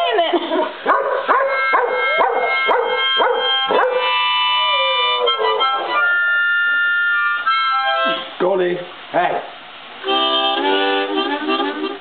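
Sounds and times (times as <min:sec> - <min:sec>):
dog yowling barks: 0:00.6 - 0:06.2
harmonica playing: 0:01.4 - 0:08.4, 0:10.0 - 0:12.0.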